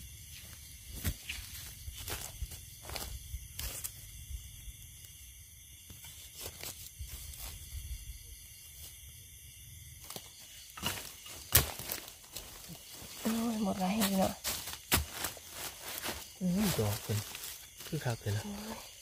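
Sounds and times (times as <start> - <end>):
footsteps rustling leaf litter: 11.0 - 18.4.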